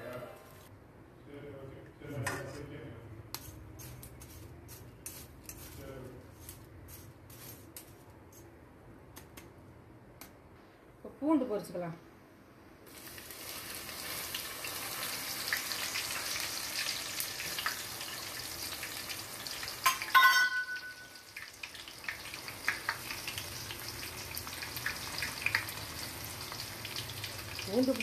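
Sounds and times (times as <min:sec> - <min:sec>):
garlic sizzling in hot oil: 0:12.9 - 0:28.0
loud ringing metal clank: 0:20.1 - 0:21.1.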